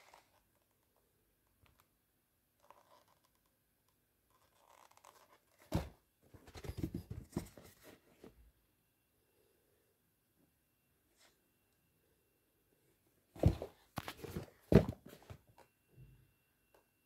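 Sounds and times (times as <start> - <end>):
sneakers rustling on carpet: 13.4 - 15.2.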